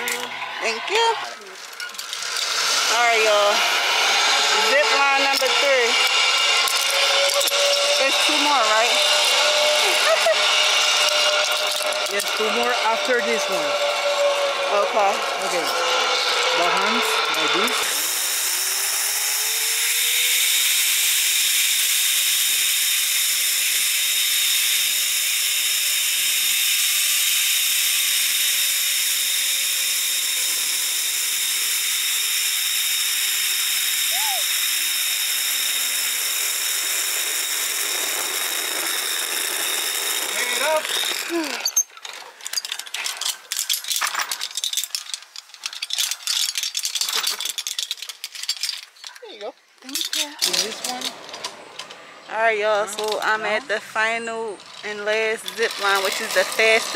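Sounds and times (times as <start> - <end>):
zip line pulleys hissing on cable: 0.0 - 48.0, 53.0 - 56.9
metallic harness hardware rattling: 1.3 - 18.0, 36.1 - 52.0, 54.6 - 56.9.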